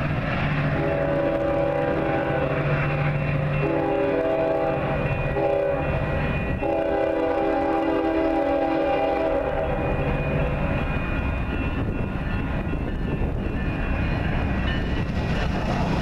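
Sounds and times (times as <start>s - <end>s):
diesel train rumble: 0.0s - 16.0s
locomotive horn: 0.7s - 2.7s, 3.6s - 6.0s, 6.6s - 9.8s.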